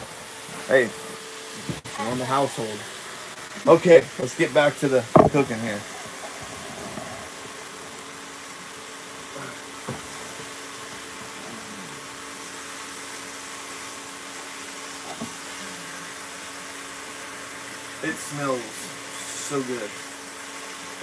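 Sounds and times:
fan hum: 0.0s - 21.0s
meat sizzling in a skillet: 12.2s - 21.0s.

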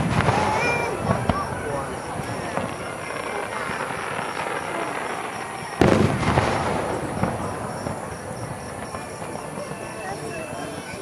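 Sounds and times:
loud firework boom: 0.0s - 9.8s
firework bangs: 0.0s - 11.0s
fireworks crackling: 0.0s - 11.0s.

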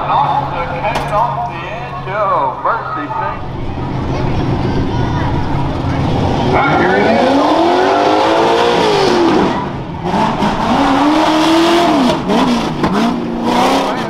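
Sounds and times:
buggy engine revving hard: 3.8s - 14.0s.

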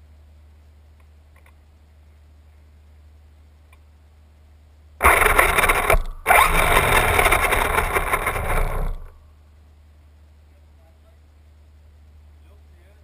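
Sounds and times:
toy car motor revving: 5.0s - 9.2s
wheels scraping ground: 5.0s - 9.2s.

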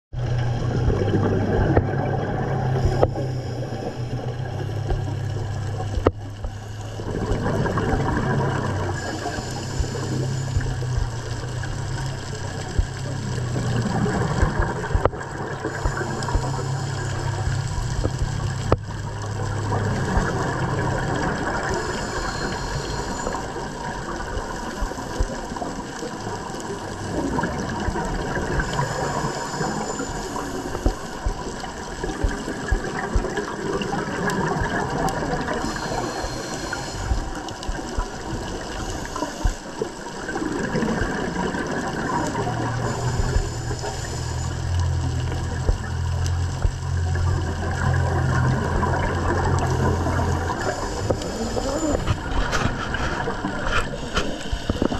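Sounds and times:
bubbling and gurgling: 0.1s - 54.9s
steady low hum: 0.2s - 54.9s
small clicks and pops: 4.0s - 21.9s, 30.0s - 54.9s
diver breathing through regulator: 8.6s - 18.8s, 20.8s - 23.8s, 35.2s - 40.4s, 42.2s - 45.6s, 48.3s - 54.9s.

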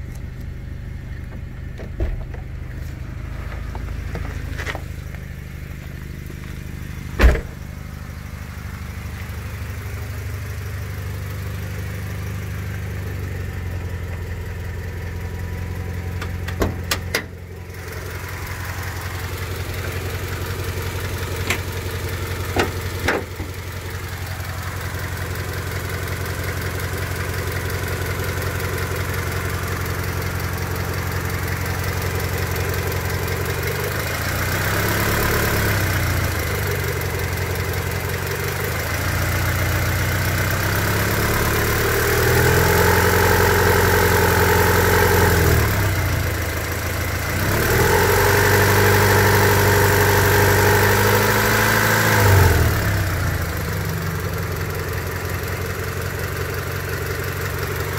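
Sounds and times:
engine tapping: 0.0s - 8.8s, 11.5s - 40.7s
car engine idling and revving: 0.0s - 57.9s.

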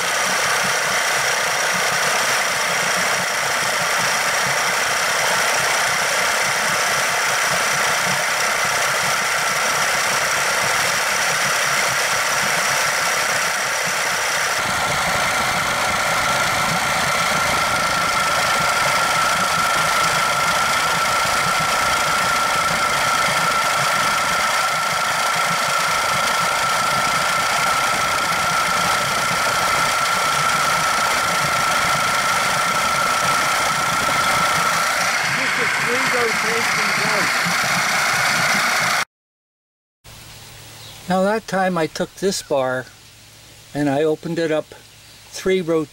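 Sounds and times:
outboard engine running: 0.0s - 39.0s
high-pitched whine: 10.4s - 39.0s.

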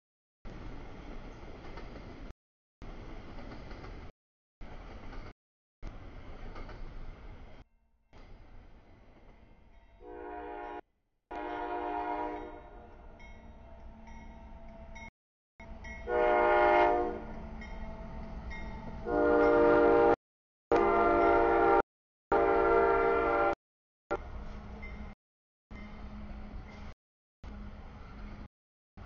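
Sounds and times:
low train rumble: 0.5s - 7.6s, 8.2s - 28.5s
train air horn blasts: 10.0s - 12.8s, 16.0s - 17.3s, 19.0s - 23.6s.

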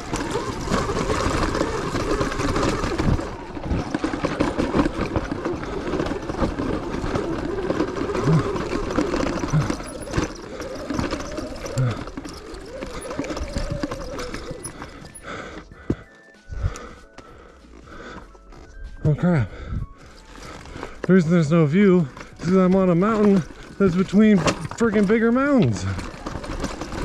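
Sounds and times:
electric motor whining: 0.0s - 15.2s
bike clattering over rocks: 0.0s - 16.0s, 20.3s - 27.0s.

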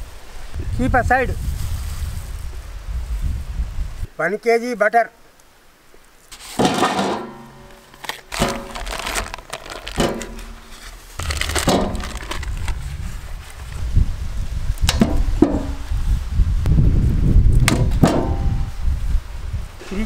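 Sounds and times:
cardboard and paper tearing: 7.8s - 13.6s
steady low rumble: 11.2s - 17.6s.

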